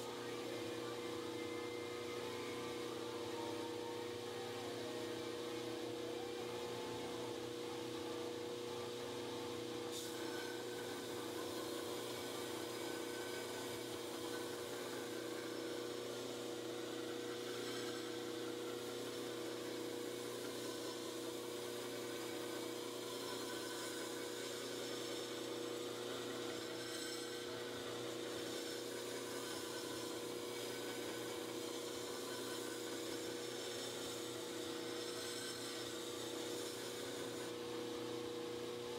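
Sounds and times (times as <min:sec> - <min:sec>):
abrasive belt hissing on steel: 0:09.9 - 0:37.6.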